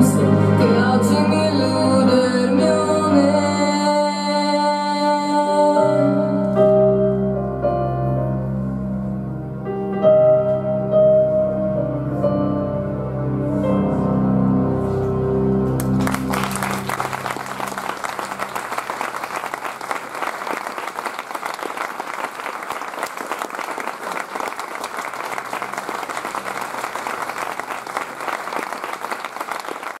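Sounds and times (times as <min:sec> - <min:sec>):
audience applauding: 0:15.8 - 0:30.0.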